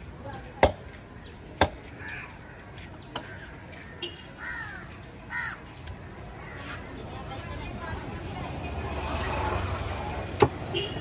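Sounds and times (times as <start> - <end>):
crows cawing: 2.0 - 5.7, 6.3 - 6.8.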